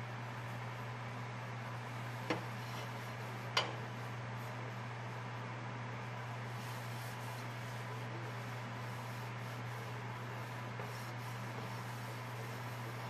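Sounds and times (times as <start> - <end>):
low hum and hiss: 0.0 - 13.0
paper towel rubbing metal griddle: 1.8 - 4.6, 6.5 - 13.0.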